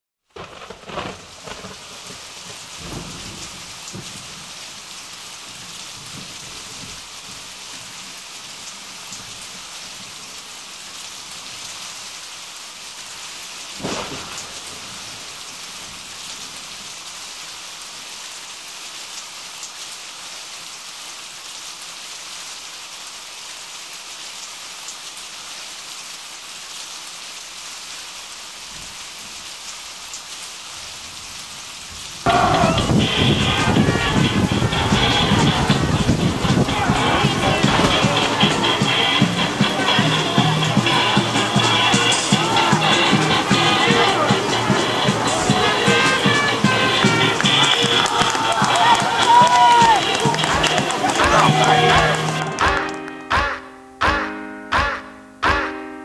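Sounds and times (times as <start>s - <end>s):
rain hiss: 0.2s - 53.2s
loud thunderclap: 0.3s - 4.6s, 13.8s - 16.2s, 32.2s - 50.9s
low thunder rumbles: 0.4s - 8.0s, 13.8s - 16.7s, 31.2s - 47.8s.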